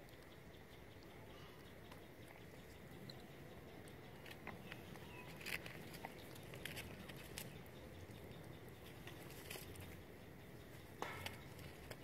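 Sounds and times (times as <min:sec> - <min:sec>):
quiet forest background: 0:00.0 - 0:12.0
monkeys chewing food: 0:00.1 - 0:12.0
crackles in dry leaves: 0:03.9 - 0:12.0.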